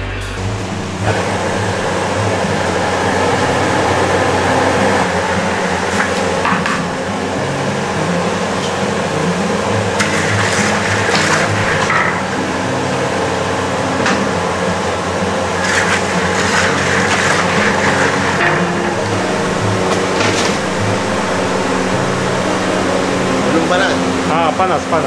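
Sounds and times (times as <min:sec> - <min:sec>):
gas burner running: 0:00.0 - 0:25.0
ladle scraping wok: 0:05.0 - 0:12.7, 0:14.2 - 0:21.0.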